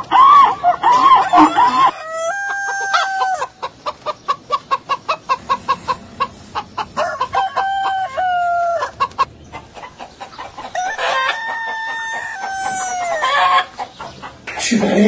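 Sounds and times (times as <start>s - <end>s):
rooster crowing: 0.0s - 3.6s, 7.0s - 9.0s, 10.6s - 13.8s.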